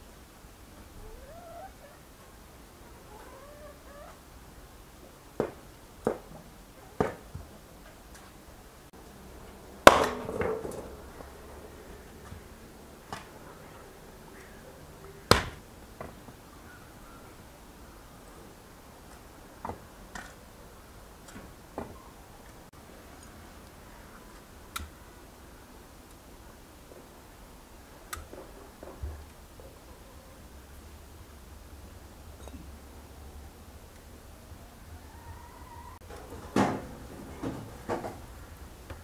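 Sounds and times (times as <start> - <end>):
hatchet chopping firewood: 9.8 - 10.8, 15.3 - 16.2
wood clattering: 9.8 - 11.4.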